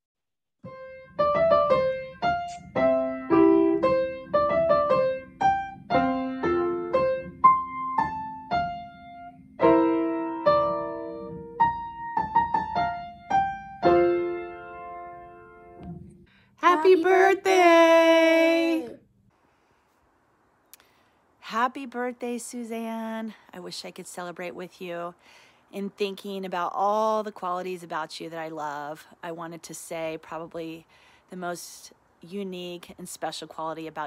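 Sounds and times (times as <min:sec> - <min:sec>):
slow piano melody: 0:00.6 - 0:16.3.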